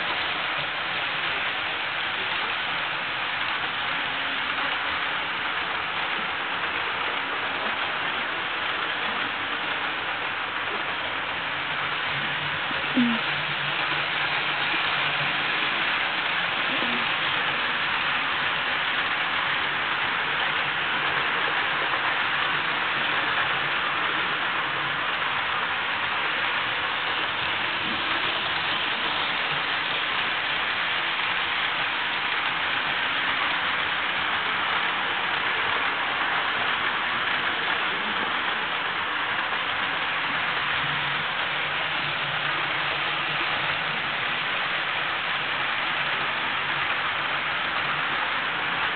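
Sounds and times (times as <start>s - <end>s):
model train wheels whirring: 3.6s - 48.9s.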